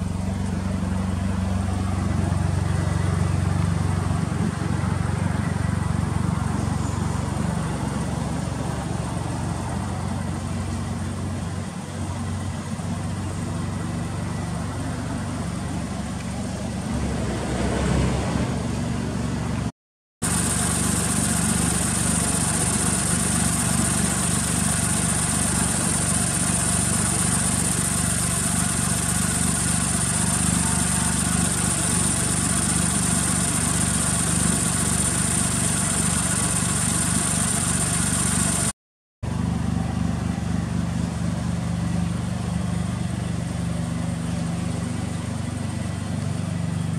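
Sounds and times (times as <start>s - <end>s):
car engine idling: 0.0s - 17.6s, 18.6s - 46.9s
high whine: 20.2s - 38.7s.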